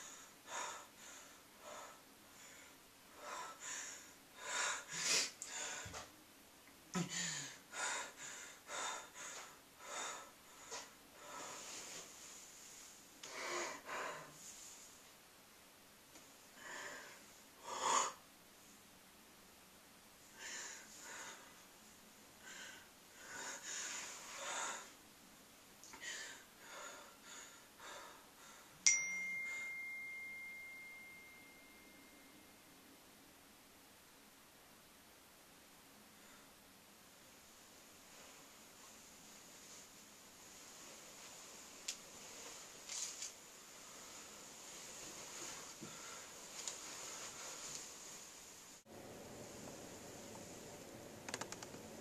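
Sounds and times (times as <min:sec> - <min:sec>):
man breathing hard: 0:07.0 - 0:11.7
heavy breathing: 0:07.0 - 0:12.2, 0:13.2 - 0:14.7, 0:20.3 - 0:21.6, 0:22.4 - 0:25.0
sharp bell-like ding: 0:28.8 - 0:32.4.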